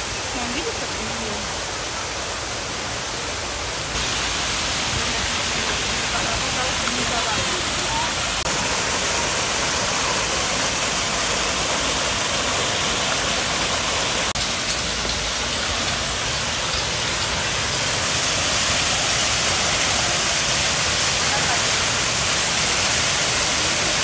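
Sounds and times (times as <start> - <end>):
water pouring over waterfalls: 0.0 - 24.0.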